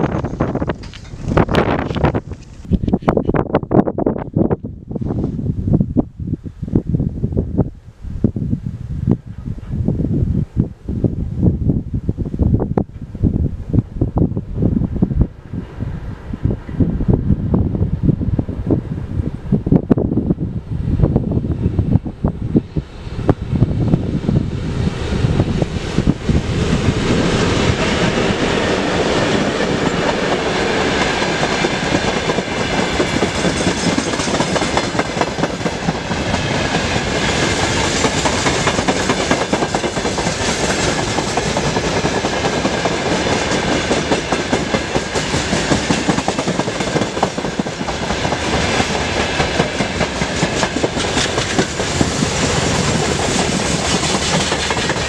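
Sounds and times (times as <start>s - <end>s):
train wheels rattling over rails: 21.4s - 55.0s.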